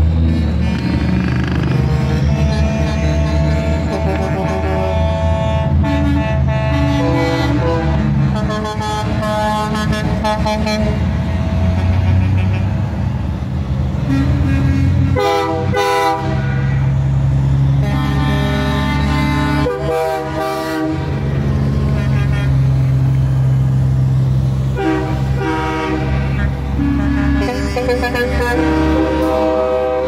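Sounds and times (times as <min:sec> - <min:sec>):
diesel engines running: 0:00.0 - 0:30.0
truck air horns blasting: 0:00.2 - 0:13.2, 0:14.0 - 0:17.0, 0:17.6 - 0:23.2, 0:24.7 - 0:30.0.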